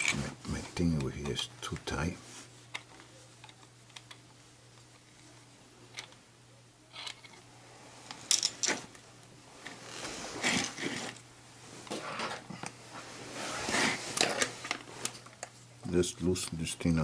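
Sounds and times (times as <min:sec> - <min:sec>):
rustling and scraping: 0:00.0 - 0:01.4, 0:06.9 - 0:15.7.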